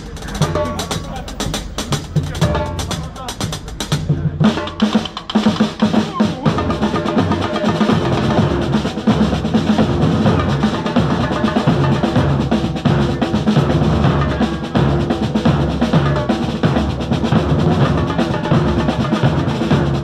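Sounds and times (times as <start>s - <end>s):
marching bass drums: 0.0s - 20.0s
snare drum: 0.0s - 20.0s.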